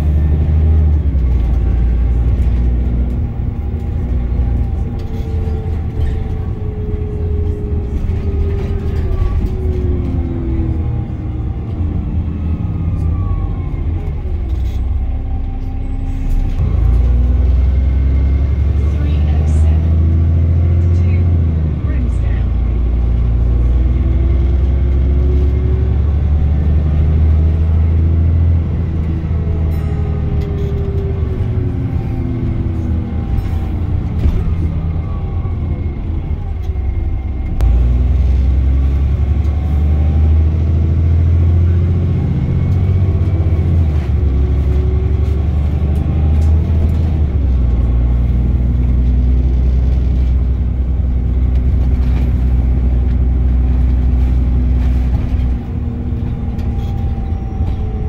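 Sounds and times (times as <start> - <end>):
bus diesel engine rumbling: 0.0 - 58.0.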